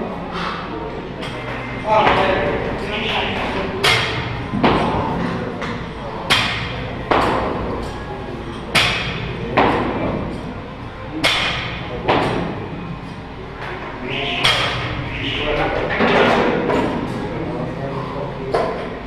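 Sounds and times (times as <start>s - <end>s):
heavy thumps echoing in a hall: 0.0s - 12.9s, 14.0s - 19.0s.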